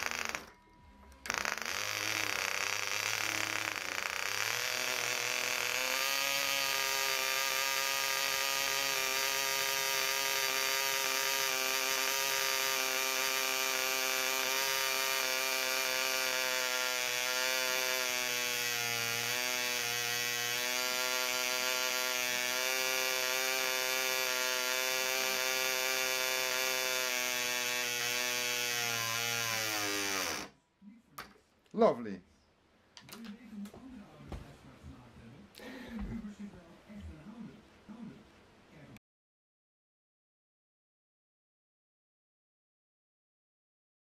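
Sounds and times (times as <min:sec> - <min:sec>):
model engine running at high speed: 0:01.3 - 0:30.5.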